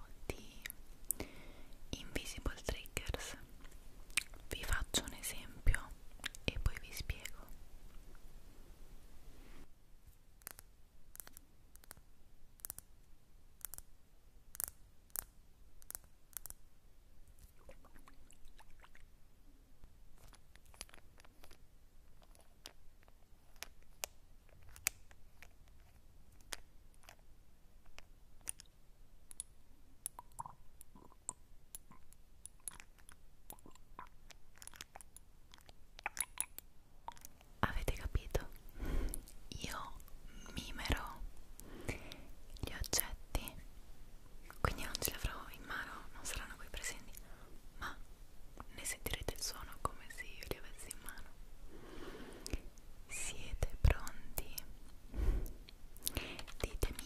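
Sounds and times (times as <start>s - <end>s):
mouth clicks and crackles: 2.7s - 8.1s, 10.4s - 12.9s, 14.5s - 16.6s, 17.4s - 19.1s, 20.2s - 40.2s, 52.4s - 57.0s.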